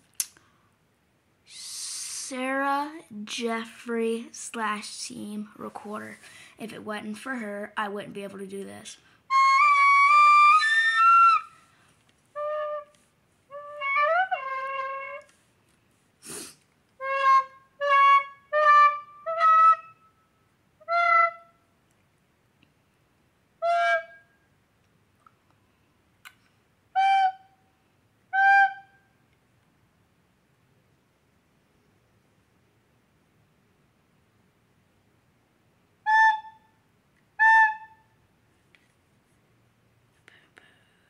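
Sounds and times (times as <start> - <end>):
plastic recorder playing notes: 9.3 - 11.5, 12.4 - 15.3, 17.0 - 20.0, 20.8 - 21.5, 27.0 - 27.5, 28.3 - 29.0, 36.0 - 36.7, 37.4 - 38.1.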